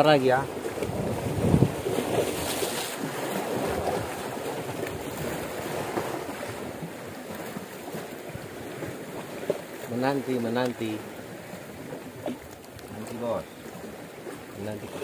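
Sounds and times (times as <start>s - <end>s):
waves washing against rocks: 0.0s - 15.0s
wind on microphone: 0.6s - 7.0s.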